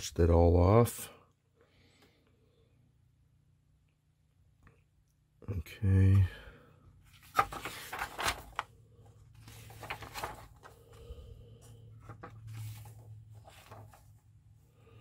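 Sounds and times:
paper pages rustling: 0:07.0 - 0:14.4.

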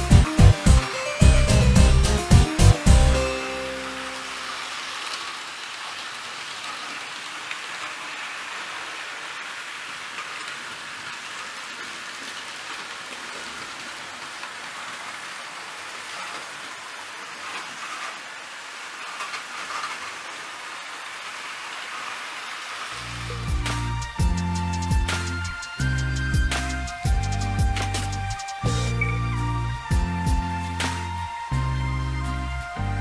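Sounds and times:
model train wheels rattling: 0:16.1 - 0:20.8.

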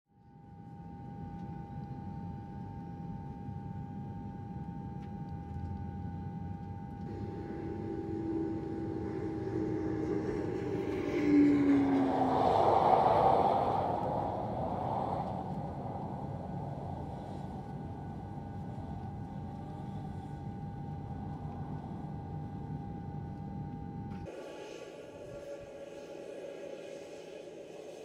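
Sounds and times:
jet engines whining and rumbling: 0:06.7 - 0:28.0
loud rushing noise: 0:07.0 - 0:18.3
low tone gliding down: 0:07.0 - 0:19.0.

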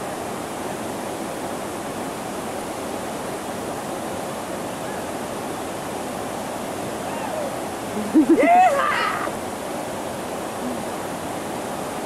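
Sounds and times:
whitewater rapids roaring: 0:00.0 - 0:12.0.

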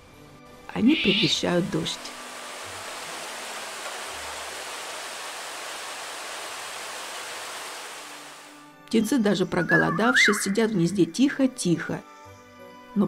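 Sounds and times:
rain on foliage: 0:01.7 - 0:08.6.

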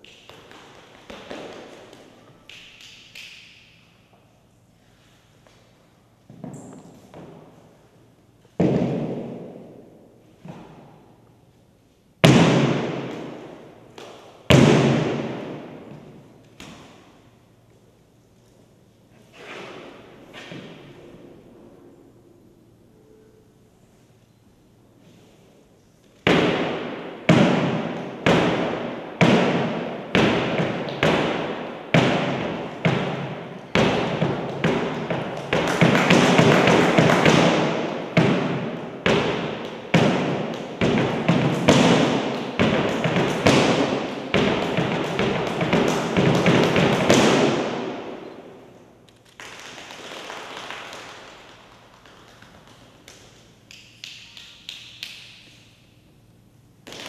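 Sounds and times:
flamenco heels stamping on platform: 0:26.3 - 0:47.8.

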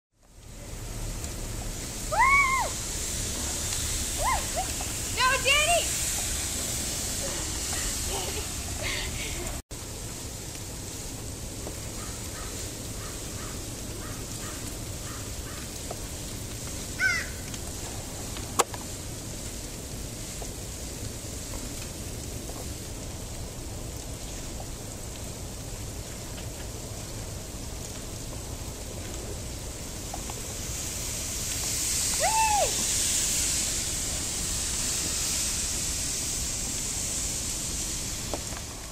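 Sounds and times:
steady outdoor background noise: 0:00.1 - 0:38.9
sled sliding over snow: 0:00.2 - 0:38.9
person crying out: 0:32.2 - 0:32.8.

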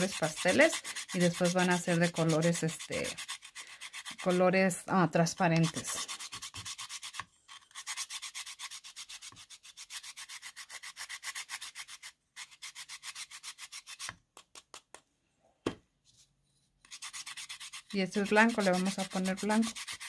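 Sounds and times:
chalk rasping on metal grater: 0:00.0 - 0:14.2, 0:16.8 - 0:20.0.

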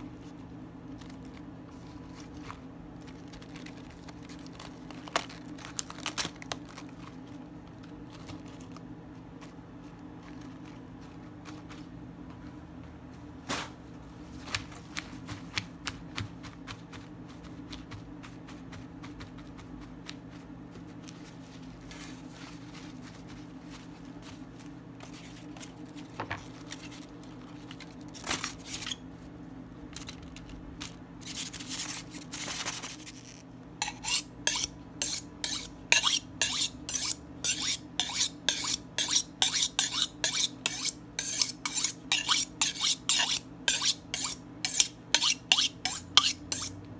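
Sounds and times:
steady low hum: 0:00.0 - 0:46.9
lettuce leaves rustling: 0:00.9 - 0:12.0, 0:16.6 - 0:29.0
knife scraping on honing rod: 0:33.8 - 0:46.8.

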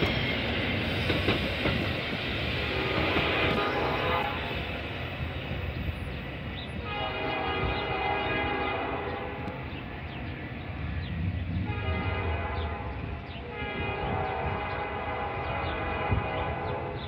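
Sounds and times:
train rumbling: 0:00.0 - 0:17.0
train air horn blasts: 0:02.6 - 0:04.6, 0:06.8 - 0:09.5, 0:11.6 - 0:17.0.

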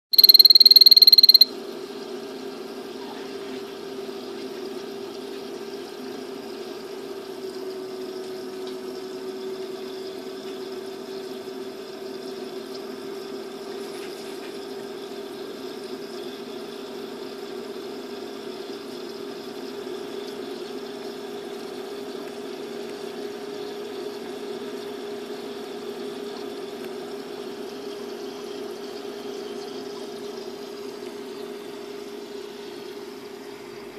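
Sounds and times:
high electronic beep: 0:00.1 - 0:01.5.

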